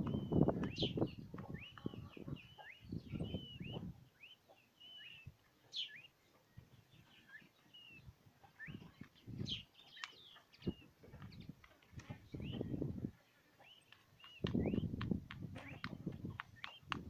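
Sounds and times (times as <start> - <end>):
chicks peeping: 0.0 - 17.0
beaks pecking feed tray: 13.5 - 17.0.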